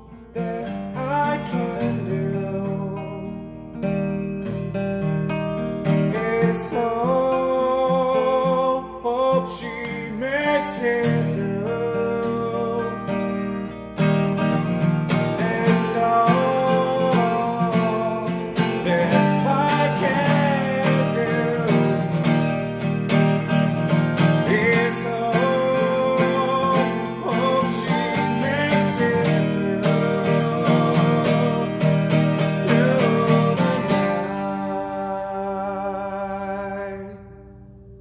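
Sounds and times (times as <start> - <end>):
acoustic guitar strumming chords: 0.0 - 38.0.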